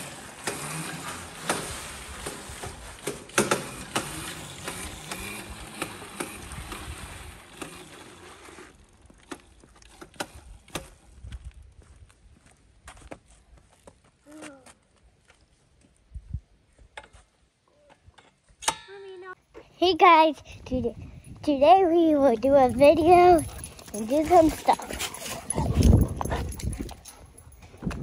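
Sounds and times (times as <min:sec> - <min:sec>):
dirt bike rattling over concrete: 0:00.0 - 0:11.0.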